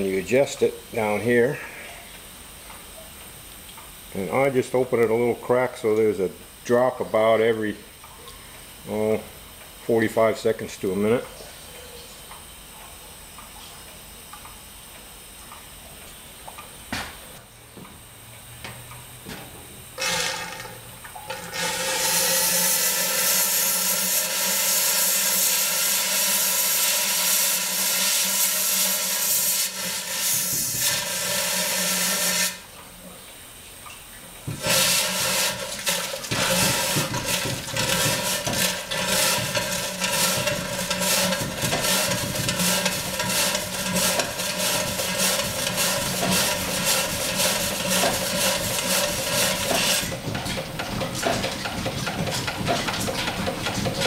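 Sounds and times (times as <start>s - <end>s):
steam engine chuffing: 21.3s - 32.7s, 34.6s - 54.0s
steam hissing: 21.3s - 32.7s, 34.5s - 50.3s.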